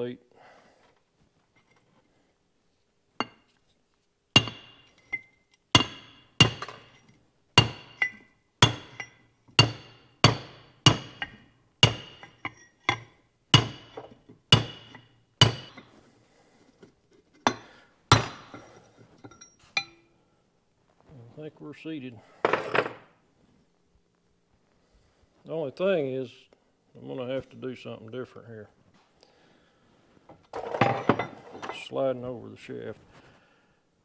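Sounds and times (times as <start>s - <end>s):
hammer striking steel plate: 4.4s - 5.1s, 5.8s - 7.0s, 7.6s - 15.9s.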